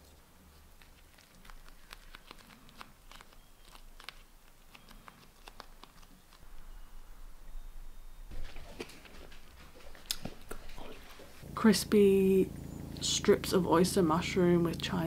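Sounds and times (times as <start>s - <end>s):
rice paper crinkling: 0.0s - 6.4s.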